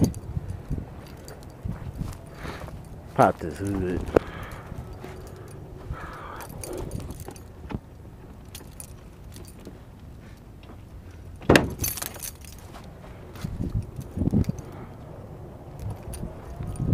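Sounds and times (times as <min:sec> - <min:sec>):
small jingling clicks: 0:00.0 - 0:15.1, 0:15.7 - 0:16.9
hood latch popping: 0:11.4 - 0:12.3.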